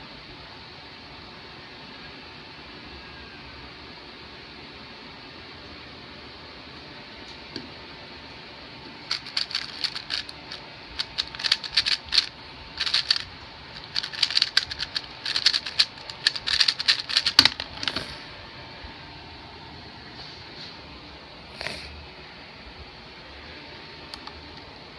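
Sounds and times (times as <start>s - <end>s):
plastic puzzle cube clicking: 9.1s - 18.0s.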